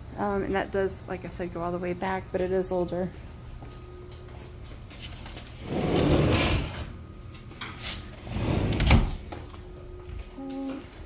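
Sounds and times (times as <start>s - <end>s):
sliding glass door rolling: 5.6s - 7.0s, 8.2s - 9.2s.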